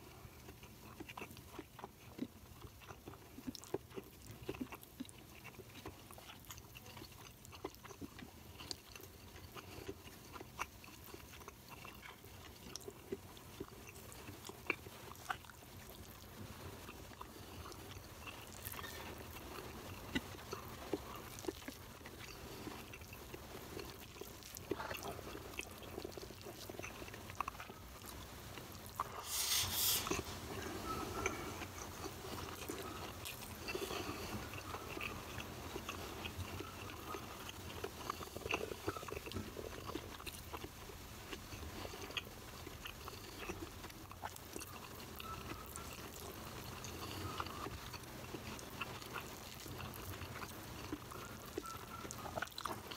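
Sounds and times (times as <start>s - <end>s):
close-up chewing with mouth clicks: 0.0s - 52.9s
loud hiss: 29.2s - 30.1s.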